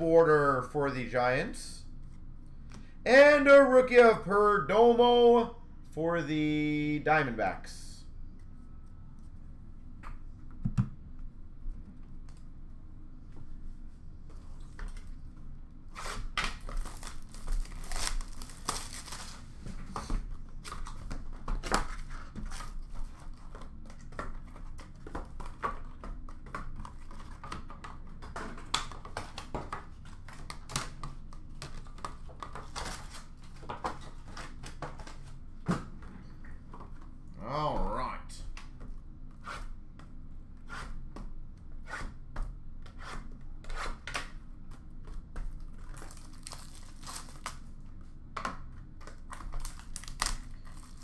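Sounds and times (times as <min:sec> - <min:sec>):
packaging crinkling and tearing: 0:16.2 - 0:19.6, 0:45.6 - 0:47.7, 0:49.1 - 0:51.0.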